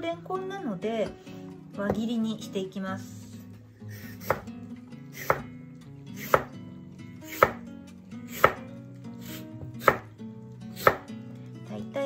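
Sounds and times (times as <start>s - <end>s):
knife slicing on cutting board: 4.0s - 4.5s, 5.2s - 5.4s, 6.2s - 6.5s, 7.3s - 7.6s, 8.3s - 8.6s, 9.2s - 10.1s, 10.8s - 11.0s.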